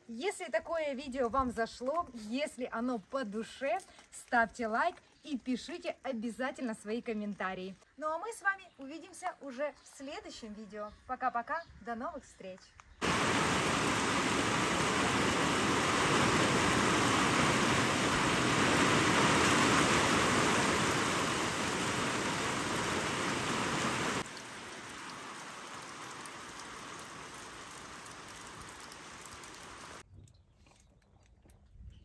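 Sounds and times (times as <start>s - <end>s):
rain falling and splashing: 13.0s - 30.0s.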